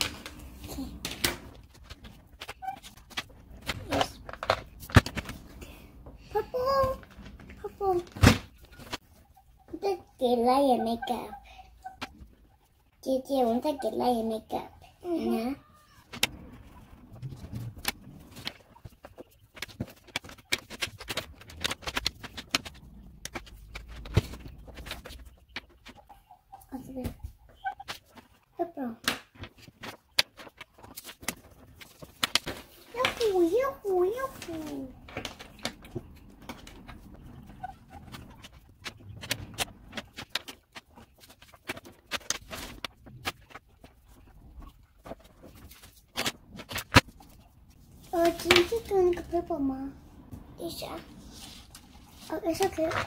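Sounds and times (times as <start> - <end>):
crayons tapping on paper: 17.4 - 26.0.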